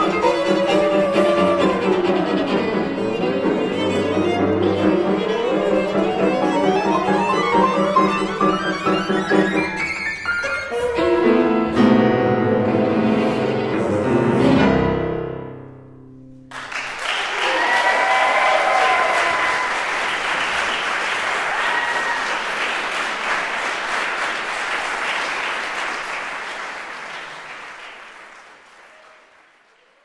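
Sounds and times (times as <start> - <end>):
audience applause: 0.0 - 9.6, 16.5 - 30.0.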